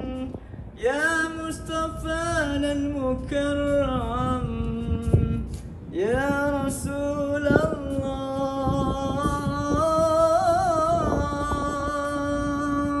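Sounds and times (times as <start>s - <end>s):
man singing: 0.0s - 13.0s.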